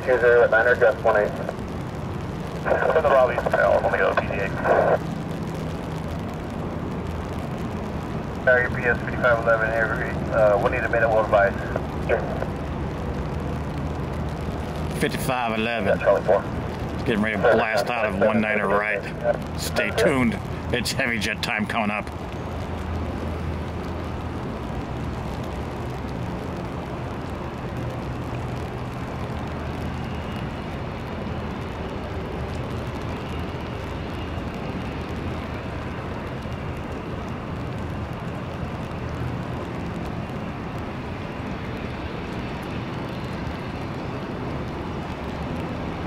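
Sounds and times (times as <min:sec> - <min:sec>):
faint high whine: 0:00.0 - 0:24.6
turboprop engines droning: 0:00.0 - 0:46.0.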